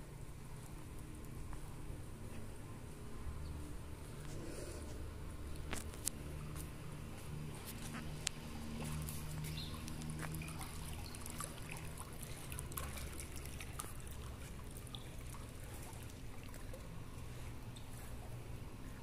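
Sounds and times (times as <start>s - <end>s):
low steady hum: 0.0s - 19.0s
water trickling and splashing: 5.4s - 19.0s
small ticks: 9.0s - 11.5s.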